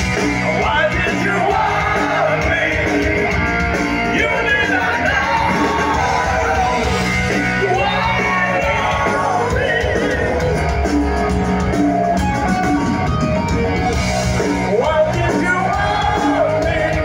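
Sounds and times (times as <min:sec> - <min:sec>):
live hard rock band playing: 0:00.0 - 0:17.0
man singing lead vocal: 0:00.4 - 0:11.0, 0:14.6 - 0:17.0.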